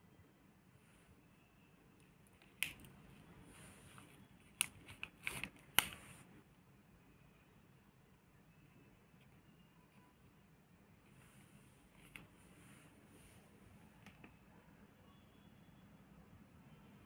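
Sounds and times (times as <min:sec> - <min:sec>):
plastic pouch crinkling: 0:04.4 - 0:06.0.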